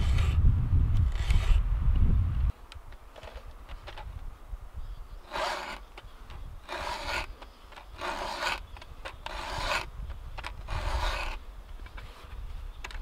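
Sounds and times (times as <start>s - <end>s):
file rasping on chainsaw chain: 5.3s - 5.9s, 6.6s - 9.9s, 10.6s - 11.4s.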